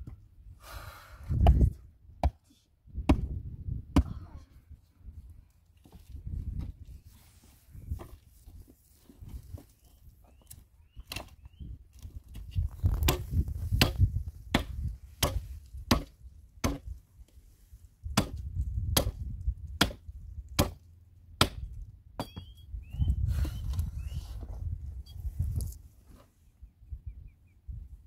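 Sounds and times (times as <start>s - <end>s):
wood being chopped: 2.2s - 2.4s, 3.1s - 4.2s, 13.0s - 16.9s, 18.1s - 20.0s, 20.6s - 20.8s, 21.4s - 22.5s.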